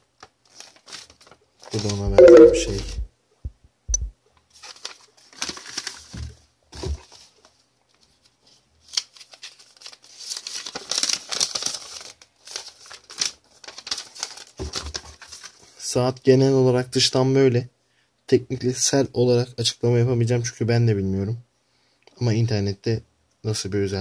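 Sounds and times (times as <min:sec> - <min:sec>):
paper rustling and crinkling: 0:00.1 - 0:02.0, 0:04.4 - 0:15.8.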